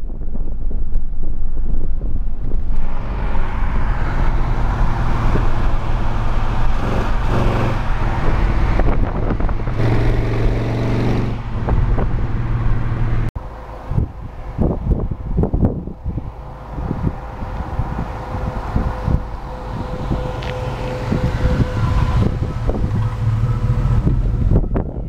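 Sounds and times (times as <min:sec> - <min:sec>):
car engine exhaust note: 0:00.0 - 0:25.0
road and wind rush: 0:00.0 - 0:25.0.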